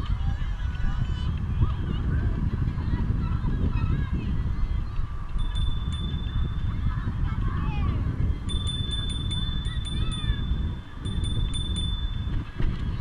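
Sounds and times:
wind buffeting microphone: 0:00.0 - 0:13.0
thin steady high whine: 0:05.4 - 0:07.7, 0:08.5 - 0:13.0.

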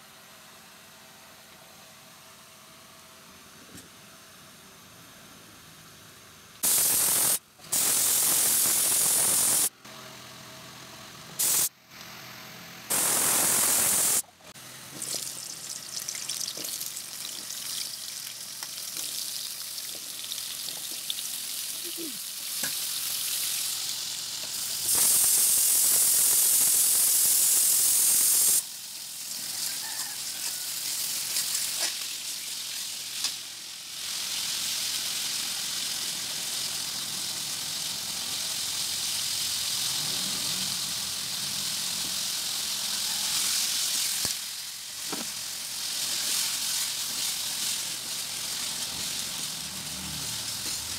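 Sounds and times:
potatoes sizzling in oil: 0:06.6 - 0:09.7, 0:12.9 - 0:50.9
pressure cooker steam hissing: 0:06.6 - 0:09.7, 0:11.4 - 0:11.7, 0:12.9 - 0:14.2, 0:20.5 - 0:50.9.

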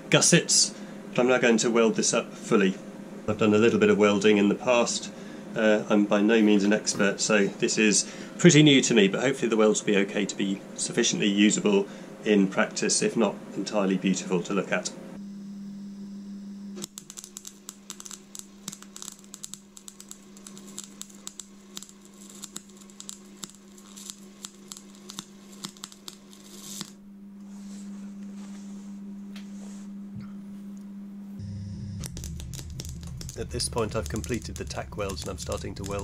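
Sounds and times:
steady low hum: 0:00.0 - 0:36.0
welding arc crackling: 0:16.8 - 0:27.0, 0:31.4 - 0:36.0.

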